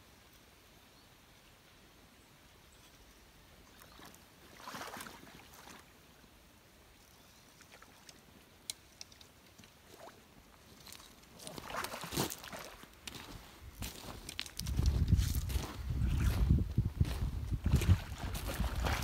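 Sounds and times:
low background hiss: 0.0 - 14.8
water splashing: 3.7 - 5.9, 9.8 - 13.0, 17.6 - 19.0.

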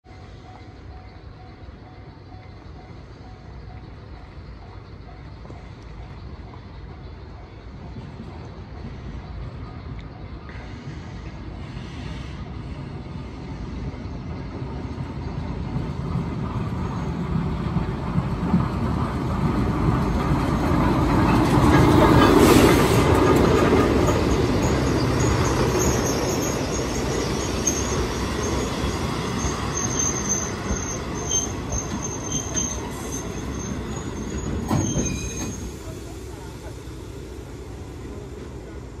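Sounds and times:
diesel locomotive rumble: 0.1 - 39.0
wheel and brake squeal: 24.1 - 36.0.

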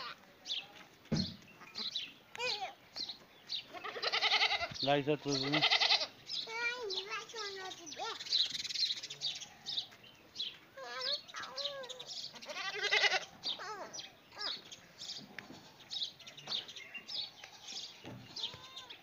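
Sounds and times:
small birds chirping: 0.0 - 19.0
goat bleating: 3.7 - 4.7, 5.3 - 6.2, 12.3 - 13.3.

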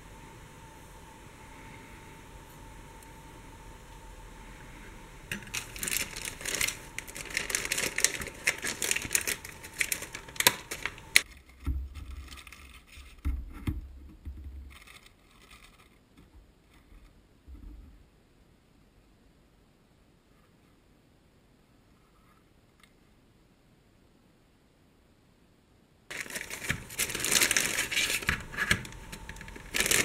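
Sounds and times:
plastic bag crinkling: 5.3 - 13.2, 26.1 - 30.0.

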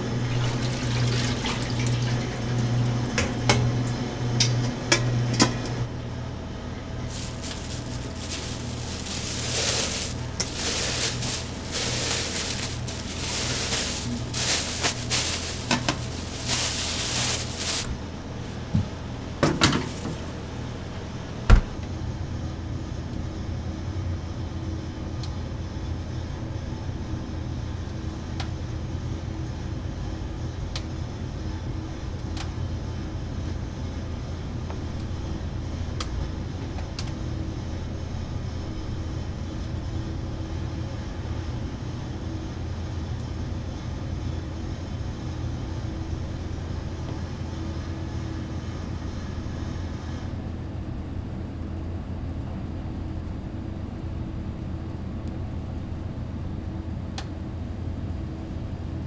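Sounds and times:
steady low hum: 2.6 - 43.2
rustling or scraping bursts: 7.1 - 18.0.

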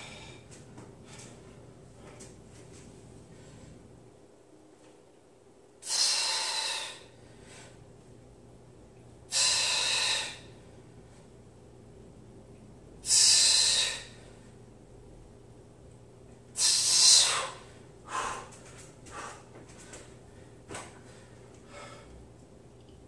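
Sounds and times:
man breathing out forcefully: 5.8 - 7.8, 9.3 - 10.6.

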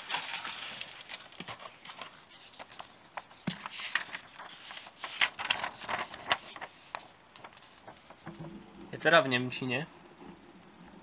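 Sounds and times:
paper rustling: 0.0 - 8.3.

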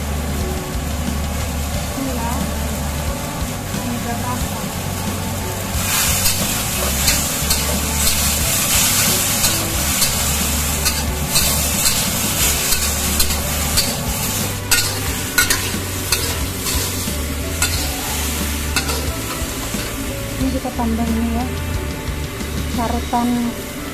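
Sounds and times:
vegetables sizzling in a wok: 0.0 - 23.9
metal spatula scraping a wok: 5.8 - 20.6.

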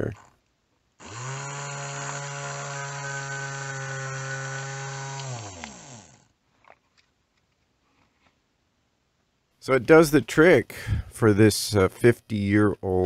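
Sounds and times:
small electric motor whining: 1.0 - 6.4.

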